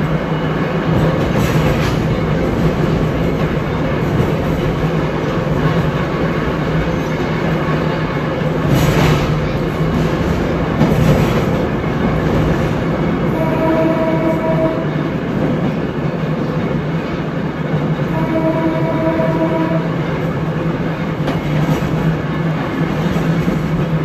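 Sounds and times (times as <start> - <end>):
trolley car rumbling on rails: 0.0 - 24.0
horn sounding: 13.3 - 15.0, 18.1 - 20.0.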